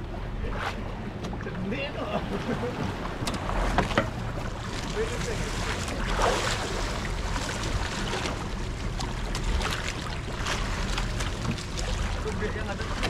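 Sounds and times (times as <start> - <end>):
steady low hum: 0.0 - 13.0
water slapping against boat: 0.0 - 13.0
wind: 0.0 - 13.0
short splashes: 2.4 - 13.0.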